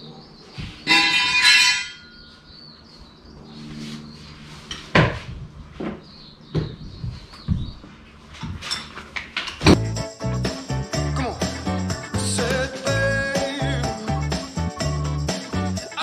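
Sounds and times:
metallic clang: 0.9 - 2.3.

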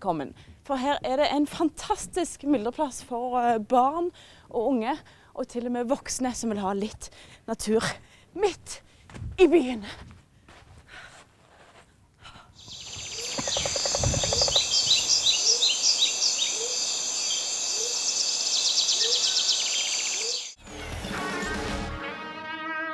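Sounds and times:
high insect-like buzz: 12.6 - 18.6
birds chirping: 12.6 - 20.6.

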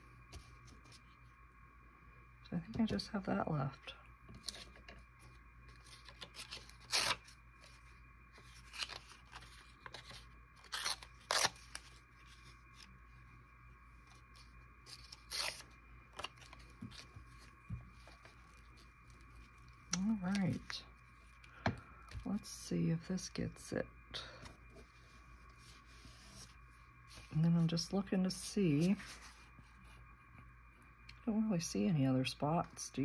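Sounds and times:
paper rustling: 4.4 - 12.9, 28.8 - 29.9
paper ripping: 5.8 - 7.8, 8.4 - 12.9, 14.3 - 17.5.

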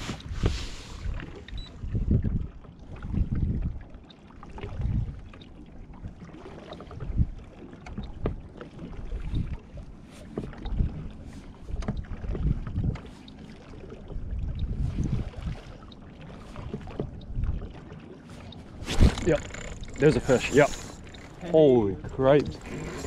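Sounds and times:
water slapping against boat hull: 0.0 - 23.0.

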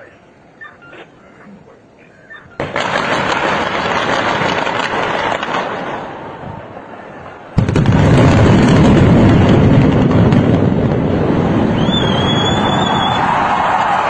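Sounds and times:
rapid crackle of explosive charges: 2.5 - 14.0
loud deep rumble of collapsing building: 7.4 - 14.0.

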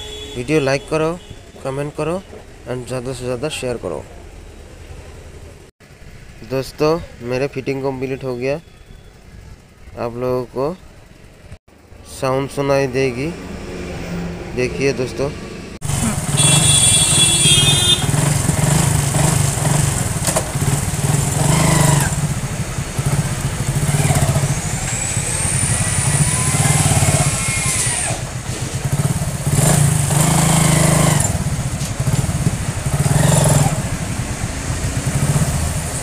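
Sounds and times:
motorcycle engine running: 15.8 - 36.0.

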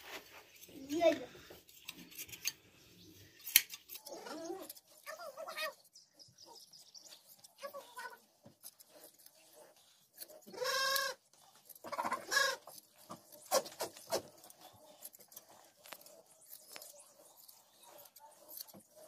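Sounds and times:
hand shears snipping: 15.0 - 19.0.

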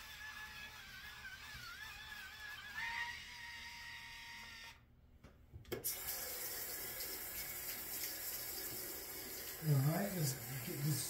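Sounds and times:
faucet running: 5.8 - 11.0.

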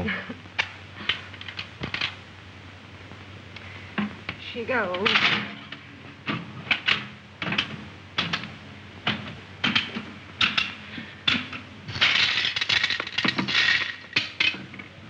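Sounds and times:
coins pouring out clattering: 12.0 - 14.2.

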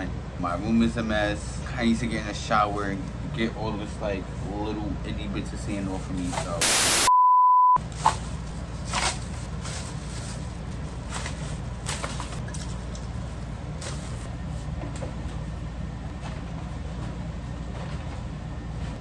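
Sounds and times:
plastic trash bag rustling: 7.9 - 14.7.

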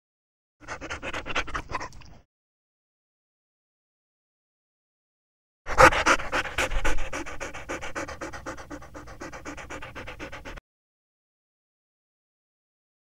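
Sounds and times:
dog panting rapidly: 0.6 - 2.0, 5.7 - 10.6.

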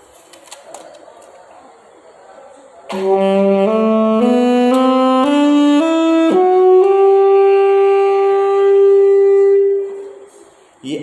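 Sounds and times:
alto saxophone playing a scale: 2.9 - 10.3.

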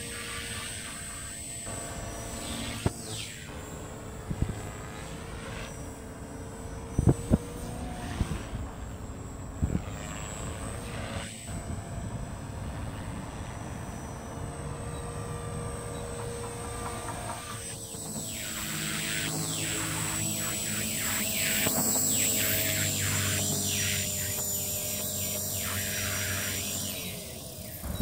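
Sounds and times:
model helicopter drone and whine: 0.0 - 28.0.

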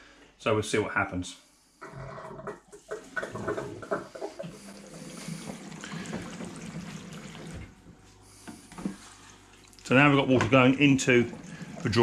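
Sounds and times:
washing machine low hum: 1.8 - 12.0
knocks and clatters: 2.3 - 4.4
water rushing into washing machine: 2.4 - 12.0.

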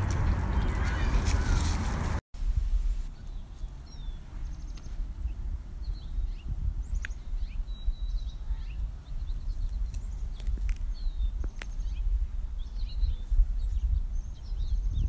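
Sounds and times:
low rumble: 0.0 - 3.1
small birds chirping: 3.1 - 15.0.

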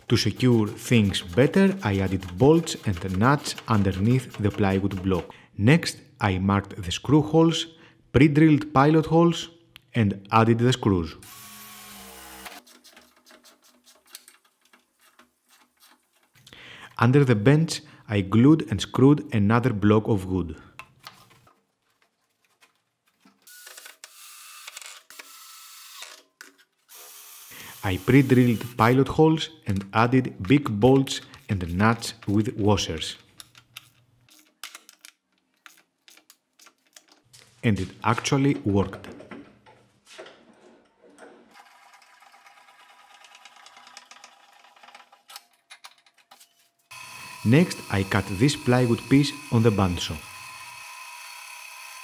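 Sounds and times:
cordless drill boring into wood: 11.2 - 12.6, 26.9 - 28.8, 46.9 - 52.0.

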